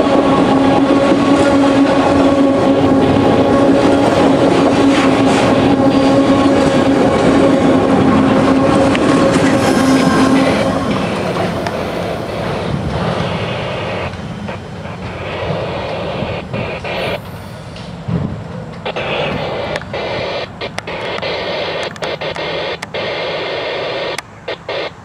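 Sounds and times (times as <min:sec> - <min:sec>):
train wheels on rails: 0:00.0 - 0:25.0
static-like hiss: 0:18.8 - 0:25.0.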